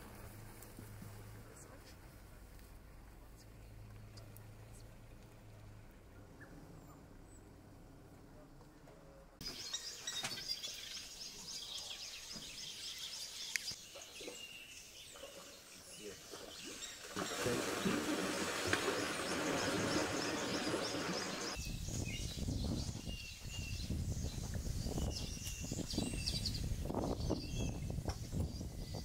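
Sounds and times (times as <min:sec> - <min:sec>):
birds chirping: 0:09.1 - 0:29.0
splashing water: 0:16.1 - 0:21.6.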